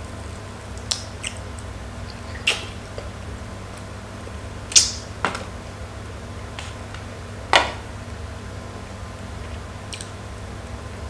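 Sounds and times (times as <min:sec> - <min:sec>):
low steady hum: 0:00.0 - 0:11.0
person chewing: 0:02.0 - 0:02.8
sharp mouth clicks: 0:02.1 - 0:02.8.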